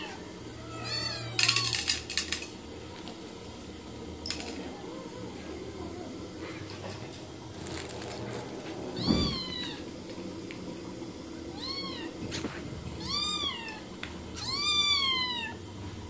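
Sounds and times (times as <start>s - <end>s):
kitten meowing: 0.0s - 1.9s, 9.0s - 9.8s, 11.5s - 12.1s, 13.0s - 13.8s, 14.4s - 15.6s
short low thump: 9.0s - 9.5s.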